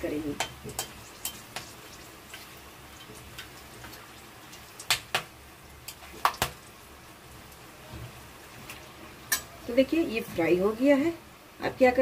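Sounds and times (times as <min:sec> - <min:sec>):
spices frying sizzle: 0:00.0 - 0:12.0
metal spatula clinking on pan: 0:09.3 - 0:09.5.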